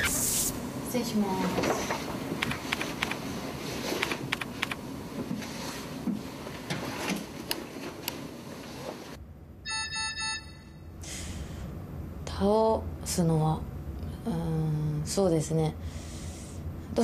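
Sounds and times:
computer keyboard typing: 4.0s - 4.8s.

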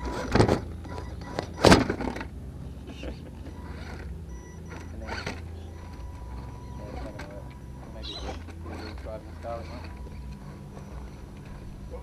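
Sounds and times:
rc car bumping over rock: 0.0s - 2.3s.

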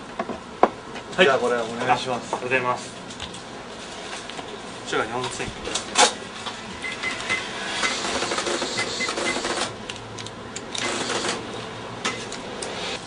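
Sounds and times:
receipt printer chatter: 6.8s - 9.8s, 10.8s - 11.4s.

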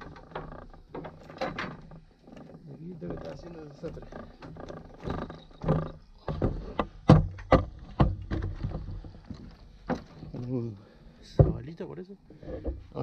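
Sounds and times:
thuds on wooden dock: 3.2s - 10.4s, 11.2s - 11.8s
sharp knocks: 5.0s - 8.9s.

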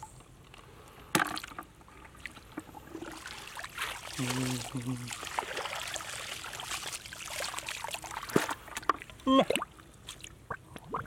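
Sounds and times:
water trickling: 2.1s - 11.0s
hands splashing in muddy water: 3.1s - 10.3s.

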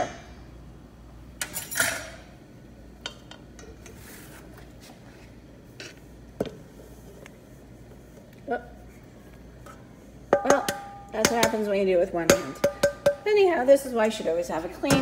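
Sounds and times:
metal bowls and spatula clinking: 9.6s - 15.0s.

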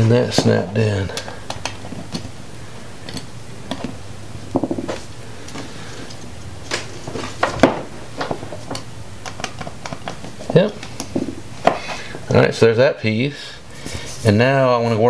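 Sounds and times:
wires and terminals clicking: 1.1s - 2.4s, 3.0s - 4.0s, 7.5s - 11.4s.

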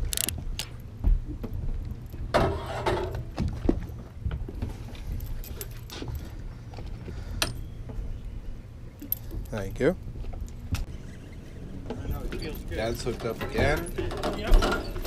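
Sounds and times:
fishing tackle clicks and rattles: 0.0s - 0.8s
boat engine humming: 0.0s - 15.0s.

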